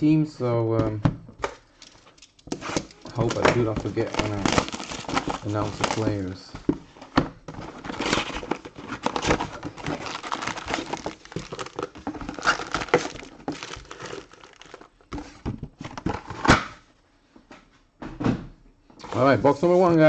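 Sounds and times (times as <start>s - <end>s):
plastic card packs crinkling: 1.6s - 16.5s.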